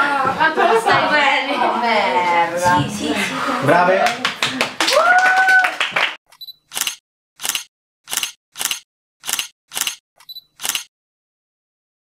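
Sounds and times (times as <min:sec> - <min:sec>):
people clapping: 0:03.9 - 0:06.2
camera autofocus beep: 0:06.3 - 0:10.9
camera shutter clicks: 0:06.7 - 0:10.9.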